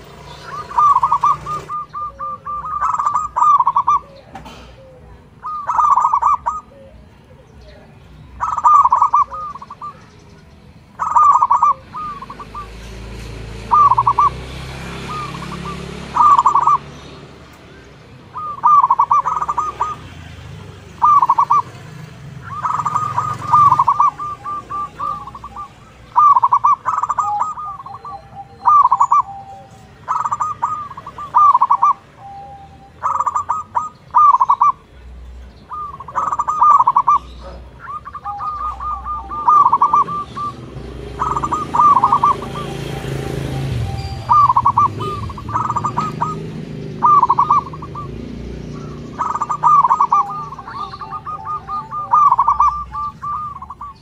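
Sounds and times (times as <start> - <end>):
dove cooing: 0.0 - 54.0.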